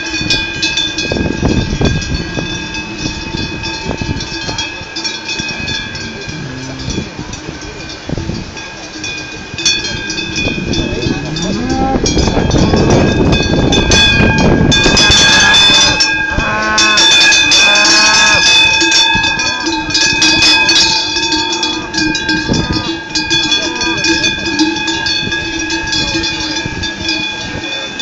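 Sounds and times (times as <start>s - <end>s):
large cowbells clanging: 0.0s - 28.0s.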